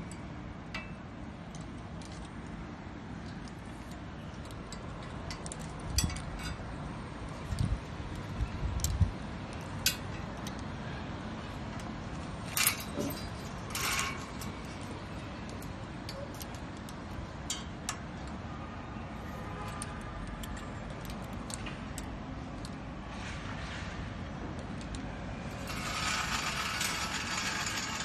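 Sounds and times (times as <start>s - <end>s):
wire hangers clinking on metal: 3.3s - 6.8s, 8.7s - 10.7s, 12.2s - 18.2s, 25.5s - 28.0s.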